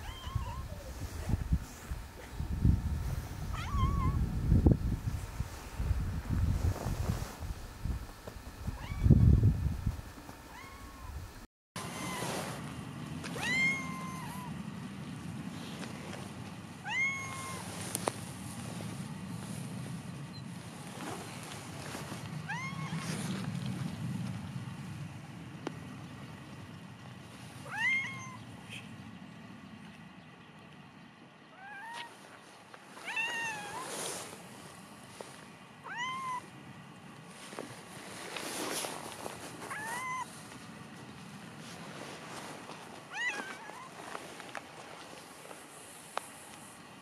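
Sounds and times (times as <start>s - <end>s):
cat meowing: 0.0s - 0.9s, 3.5s - 4.2s, 10.5s - 11.1s, 13.4s - 14.5s, 16.8s - 17.6s, 22.5s - 23.0s, 27.7s - 28.4s, 31.6s - 32.1s, 33.0s - 33.9s, 35.8s - 36.5s, 39.7s - 40.3s, 43.1s - 44.0s.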